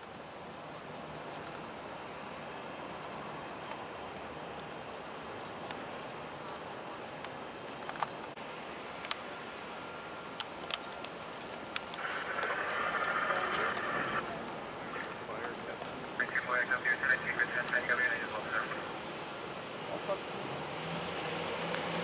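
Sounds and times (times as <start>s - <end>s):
outdoor background noise: 0.0s - 22.0s
sharp clicks: 10.2s - 16.4s.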